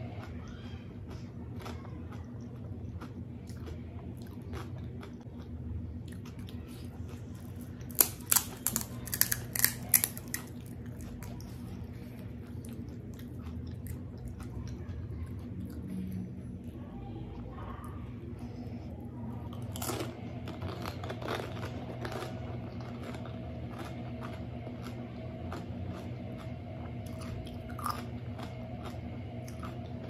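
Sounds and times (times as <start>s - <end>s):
low steady hum: 0.0s - 30.0s
fried shell crackling: 6.6s - 11.4s.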